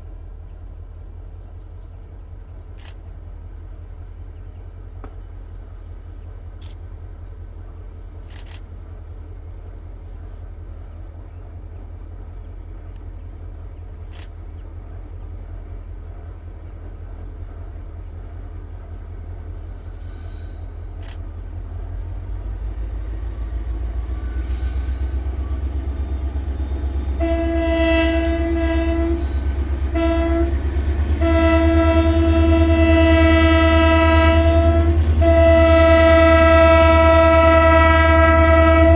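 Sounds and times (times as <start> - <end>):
locomotive rumble: 0.0 - 38.9
locomotive horn blasts: 24.3 - 38.9.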